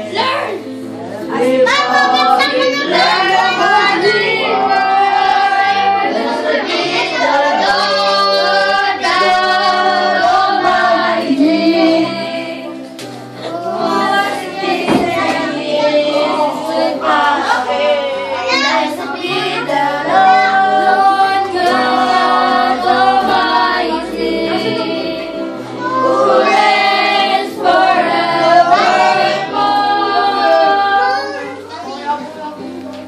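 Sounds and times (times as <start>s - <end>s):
worship song singing with music: 0.0s - 33.0s.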